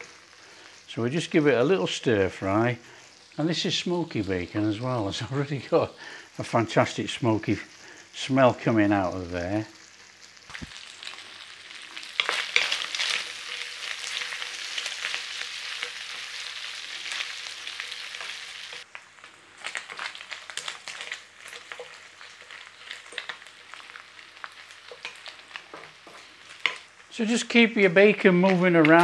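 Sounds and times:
bacon sizzling in a frying pan: 0.0 - 29.0
wooden spatula scraping a pan: 24.9 - 26.8.

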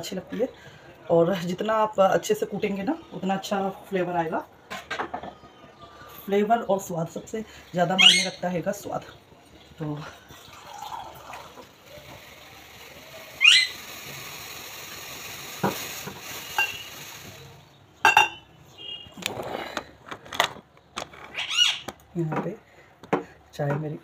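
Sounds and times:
pet squawk: 8.0 - 8.4, 13.4 - 13.8, 21.3 - 21.9
saucepan simmering hiss: 9.8 - 17.8
utensils clinking on pan: 15.6 - 17.4, 18.0 - 18.4.

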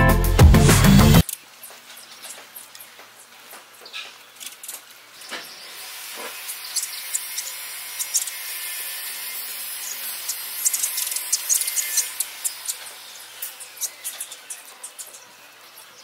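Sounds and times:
sparrows chirping: 1.0 - 16.0.

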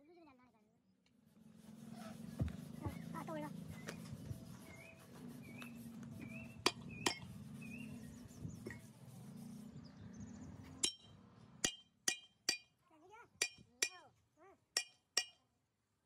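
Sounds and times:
steady low hum: 1.1 - 11.8.

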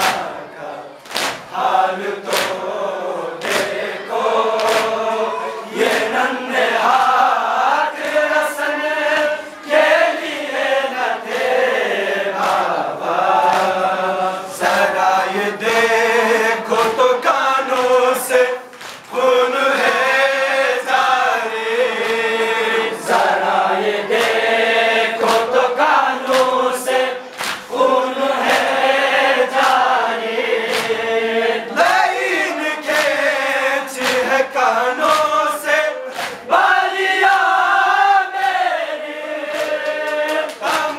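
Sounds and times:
men chanting in unison: 0.0 - 40.9
rhythmic chest-beating: 0.0 - 40.9.

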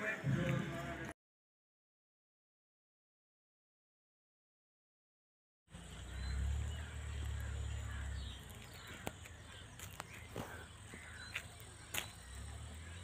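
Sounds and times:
birds chirping and calling: 5.7 - 13.0.

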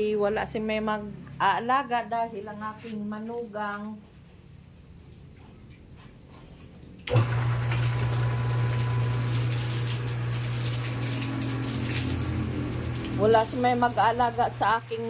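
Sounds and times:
electric water pump humming: 7.0 - 15.0
hose water spraying on concrete: 7.6 - 15.0.

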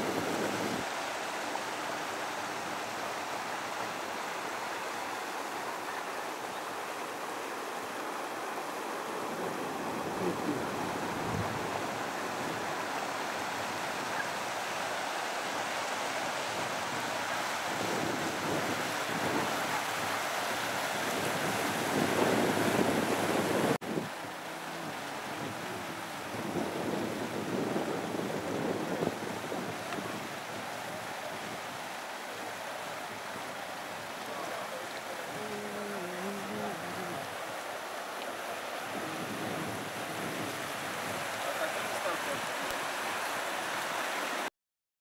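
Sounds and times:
floodwater rushing: 0.0 - 44.5.

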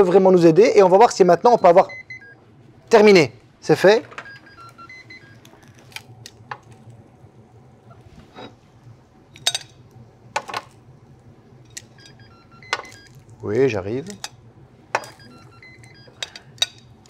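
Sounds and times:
electronic beeps: 1.4 - 2.4, 4.2 - 5.5, 11.9 - 13.2, 15.0 - 16.2.

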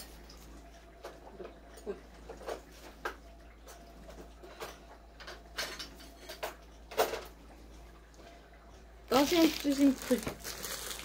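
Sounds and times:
packaging rustling: 9.1 - 11.0.

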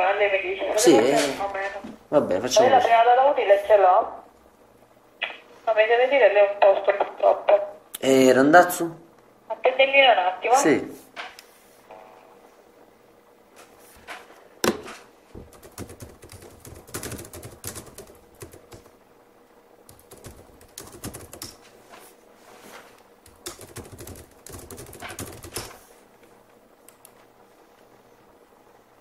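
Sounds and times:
keyboard typing: 15.5 - 18.9, 19.9 - 21.6, 23.2 - 25.8.

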